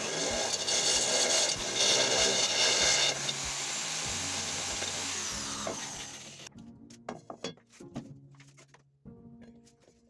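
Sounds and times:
electric drill boring: 0.0 - 6.5
background music with steady beat: 1.4 - 10.0.

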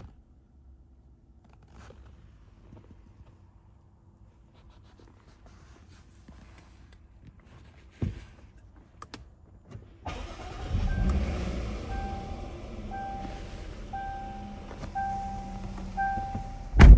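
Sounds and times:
car engine cranking and starting: 9.1 - 16.9.

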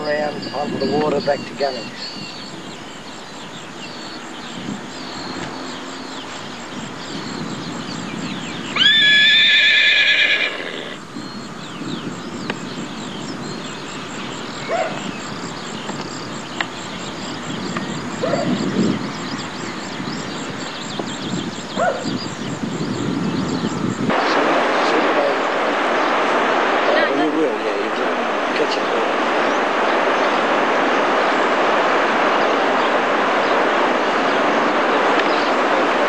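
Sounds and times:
faint chirps: 0.0 - 36.0
horse whinnying: 8.8 - 11.0
low background noise: 22.3 - 36.0.

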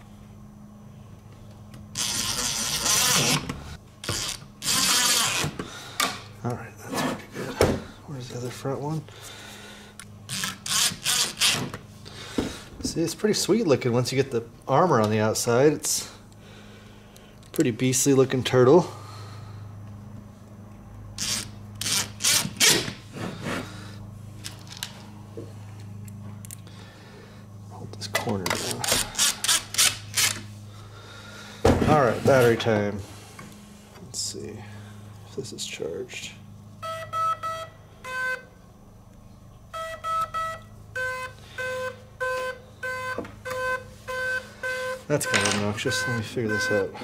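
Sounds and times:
robot electronics beeping: 39.7 - 46.9.

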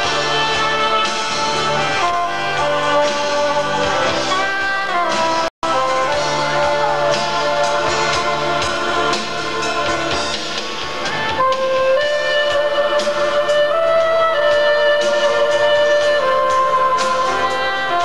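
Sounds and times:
drums steady beat: 0.0 - 18.0
rock band playing: 0.0 - 18.0.

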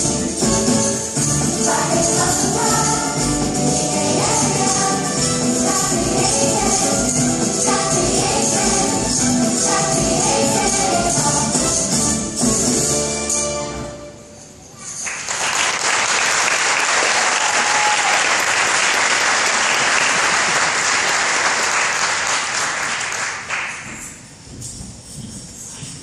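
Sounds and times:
choir singing: 0.0 - 13.3
crowd applauding: 15.0 - 23.8.

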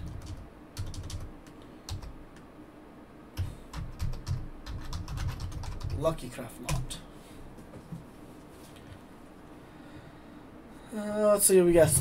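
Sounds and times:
computer keyboard typing: 0.0 - 2.2, 3.4 - 6.9.

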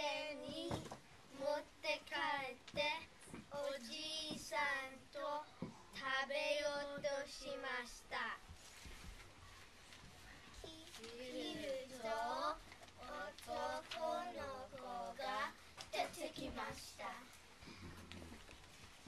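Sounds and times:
young children singing: 0.0 - 7.9, 10.6 - 17.3.

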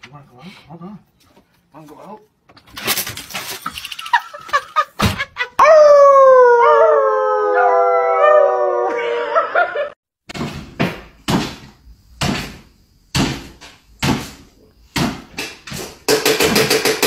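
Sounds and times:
dog and people howling: 5.6 - 10.0.

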